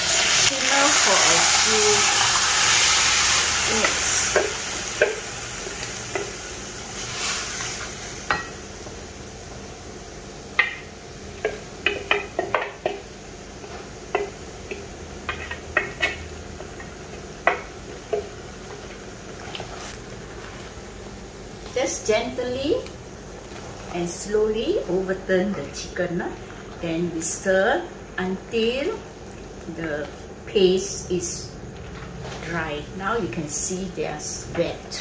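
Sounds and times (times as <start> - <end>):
chicken sizzling in a wok: 0.0 - 25.4
spatula tapping bowl and wok: 3.7 - 6.4, 10.5 - 18.9.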